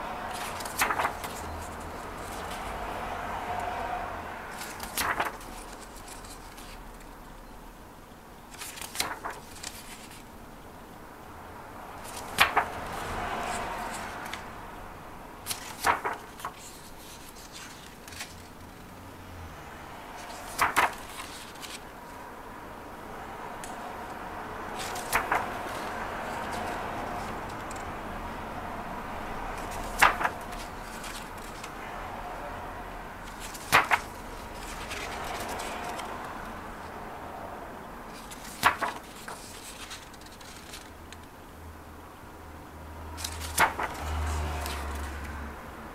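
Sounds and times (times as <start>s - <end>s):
page swishing: 0.2s - 2.7s, 4.5s - 6.8s, 8.5s - 10.3s, 12.0s - 14.4s, 15.4s - 18.6s, 20.2s - 21.8s, 24.7s - 27.9s, 29.6s - 31.7s, 33.2s - 36.3s, 38.1s - 40.9s, 43.2s - 45.3s
book pages turning: 0.2s - 3.0s, 4.5s - 7.2s, 8.5s - 10.3s, 12.0s - 14.5s, 15.4s - 18.8s, 20.1s - 22.2s, 24.7s - 28.0s, 29.4s - 31.8s, 33.2s - 36.6s, 38.1s - 41.3s, 43.1s - 45.4s
paper snap: 0.4s - 1.4s, 4.6s - 6.8s, 8.5s - 10.2s, 12.1s - 12.8s, 15.4s - 18.4s, 20.4s - 21.8s, 24.8s - 26.8s, 29.6s - 31.7s, 33.3s - 36.1s, 38.1s - 41.2s, 43.2s - 45.1s.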